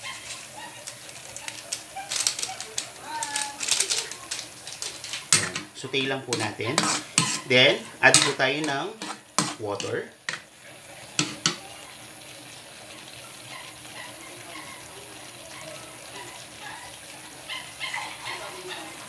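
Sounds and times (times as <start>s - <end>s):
water hissing in hot wok: 0.0s - 19.0s
metal spatula clanking on wok: 5.3s - 5.8s, 6.4s - 10.4s, 11.2s - 11.6s.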